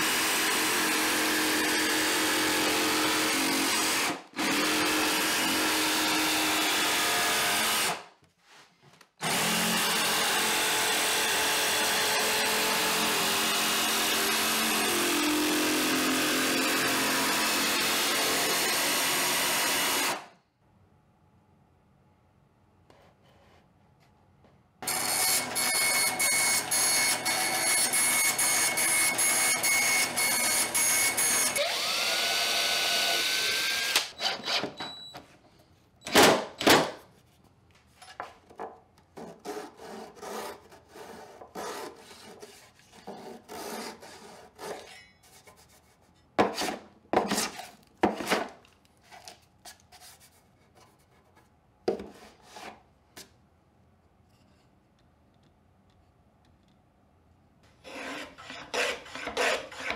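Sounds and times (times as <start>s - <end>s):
bandsaw cutting: 9.2s - 20.3s, 24.8s - 34.8s, 57.8s - 59.9s
hand saw rasping on wood: 39.2s - 44.9s, 57.8s - 59.9s.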